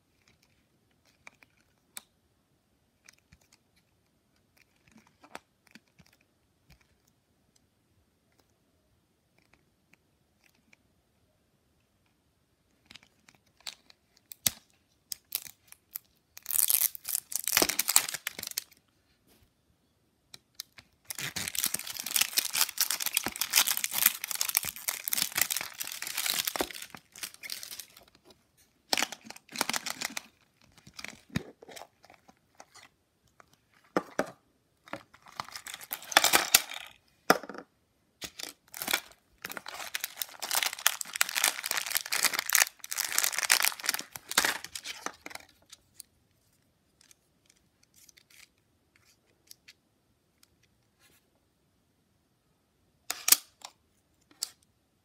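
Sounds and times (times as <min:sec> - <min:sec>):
small plastic bag crinkling: 0:12.8 - 0:18.8, 0:20.6 - 0:28.3, 0:28.9 - 0:34.0, 0:34.9 - 0:37.0, 0:38.2 - 0:46.0
plastic wrapper tearing and crinkling: 0:13.0 - 0:18.8, 0:20.6 - 0:28.2, 0:28.9 - 0:32.9, 0:35.1 - 0:37.0, 0:38.2 - 0:45.5.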